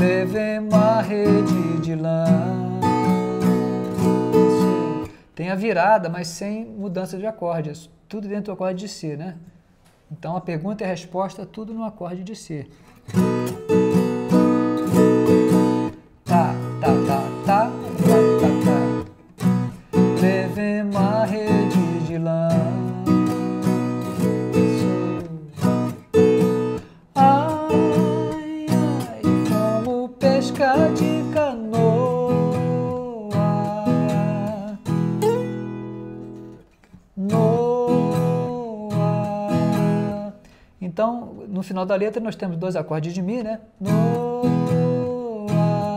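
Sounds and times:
strummed viola chords: 0.0 - 5.2, 13.1 - 36.6, 37.2 - 40.3, 43.9 - 45.9.

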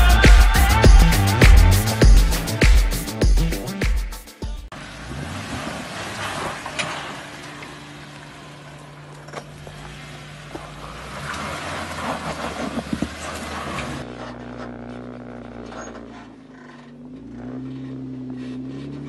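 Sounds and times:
engine running at low revs: 4.7 - 19.0.

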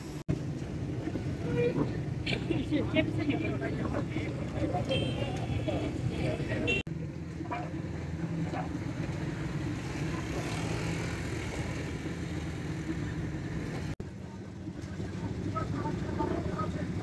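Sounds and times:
vehicle engine running: 5.9 - 17.0.

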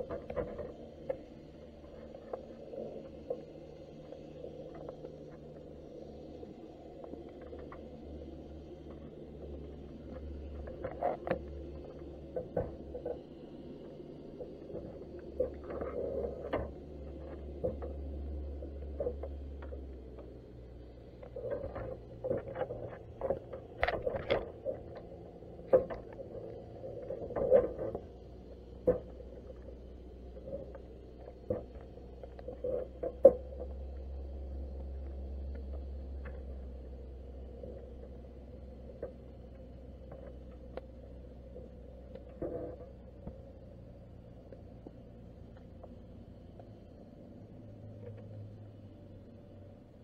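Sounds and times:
muffled underwater knocks and clicks: 0.0 - 6.3, 7.0 - 20.4, 21.1 - 34.0
low underwater rumble: 0.0 - 50.0.

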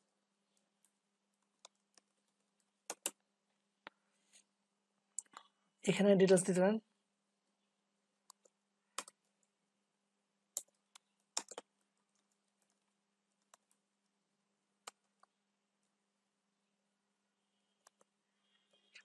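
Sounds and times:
faint low hum: 0.0 - 19.0
computer keyboard keystrokes: 2.9 - 3.2, 8.3 - 9.2, 10.6 - 11.7.

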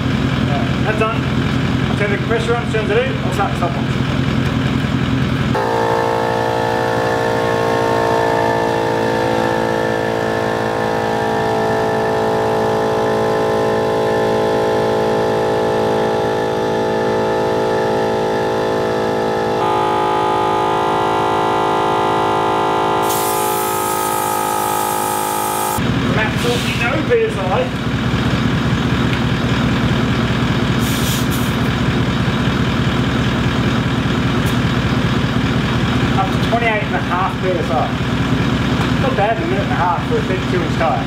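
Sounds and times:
air compressor motor whine: 5.5 - 31.2.

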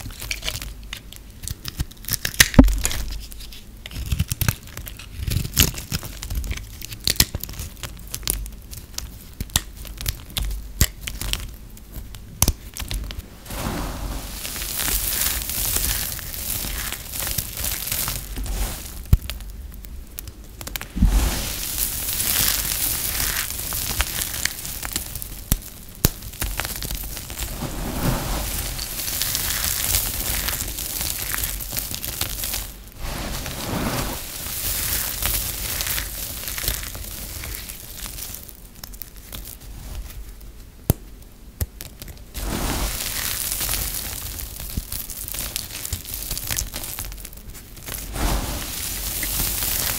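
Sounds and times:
hands crunching dry soap shavings: 0.0 - 11.5, 12.4 - 40.2, 41.6 - 49.9
knife cutting and snapping soap: 0.2 - 7.4.

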